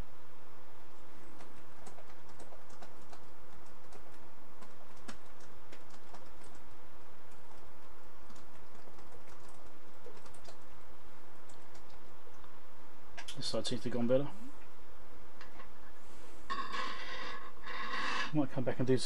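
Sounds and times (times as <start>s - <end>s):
steady hum: 0.0s - 19.0s.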